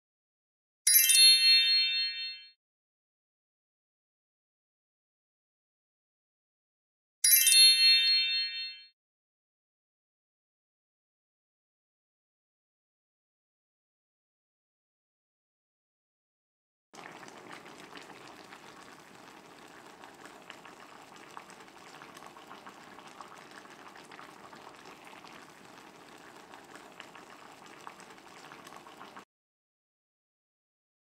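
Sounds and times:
liquid bubbling at a boil in a pot: 17.0s - 29.3s.

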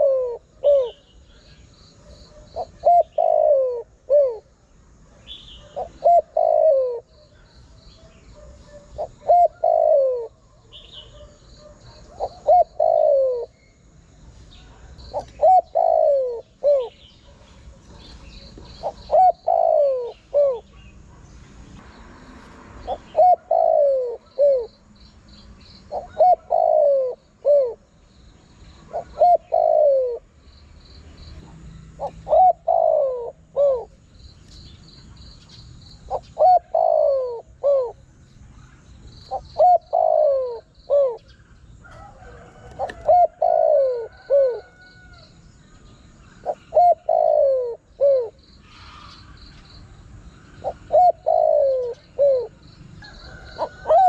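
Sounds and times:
dove cooing: 0.0s - 13.6s, 14.6s - 20.9s, 22.8s - 24.8s, 25.9s - 27.9s, 28.8s - 30.3s, 31.4s - 34.1s, 36.0s - 38.0s, 39.2s - 45.2s, 46.4s - 49.4s, 50.5s - 54.0s
faint high chirping: 0.0s - 21.8s.

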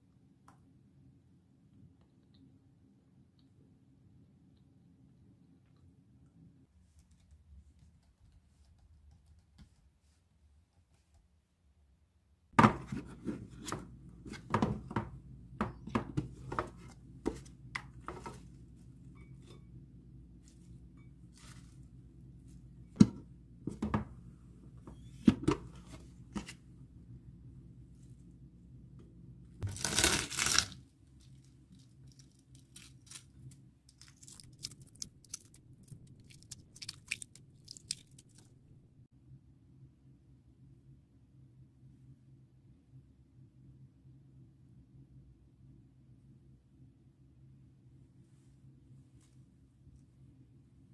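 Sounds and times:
tearing rustle: 29.6s - 35.6s
egg shell cracking: 29.6s - 38.5s.

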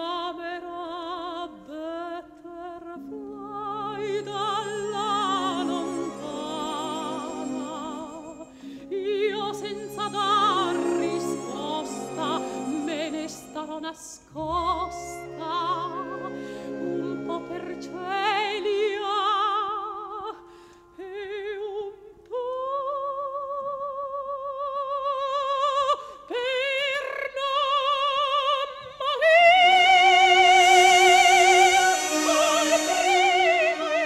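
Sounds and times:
operatic singing with vibrato: 0.0s - 23.0s, 24.9s - 34.0s
backing music: 3.0s - 20.0s, 29.6s - 34.0s.

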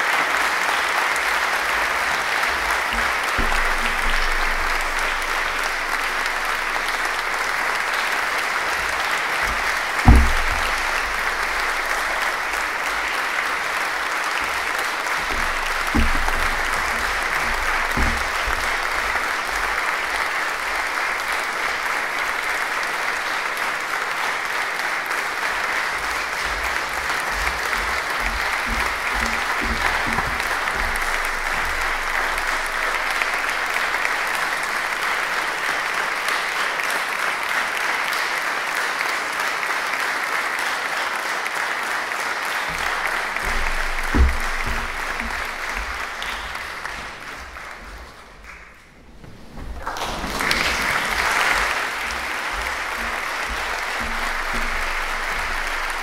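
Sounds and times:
audience applauding: 0.0s - 56.0s
low thump: 2.5s - 13.8s, 14.4s - 23.5s, 25.1s - 35.3s, 42.7s - 56.0s.

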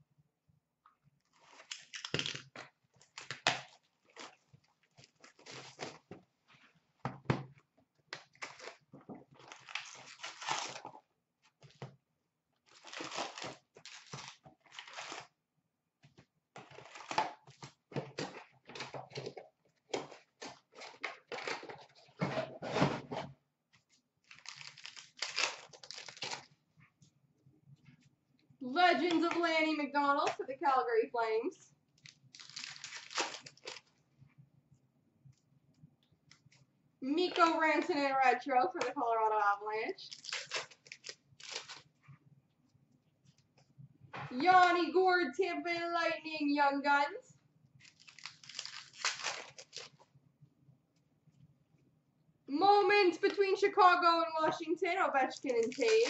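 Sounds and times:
cardboard and wrapping tearing: 1.3s - 6.1s, 8.2s - 11.8s, 12.6s - 15.4s, 16.6s - 22.1s, 24.2s - 26.6s, 32.0s - 34.0s, 40.1s - 42.0s, 47.8s - 50.0s, 55.3s - 56.0s
card packs being handled: 47.8s - 50.0s, 55.2s - 56.0s.

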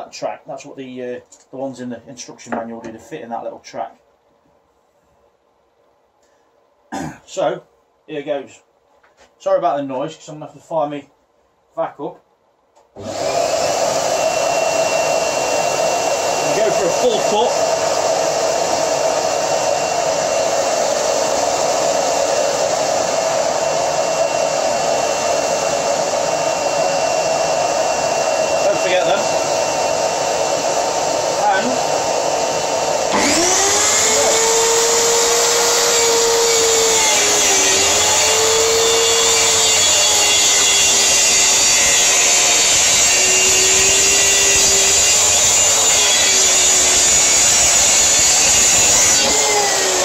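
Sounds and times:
shop vacuum running: 13.0s - 50.0s
plunge saw cutting plywood: 31.4s - 50.0s.

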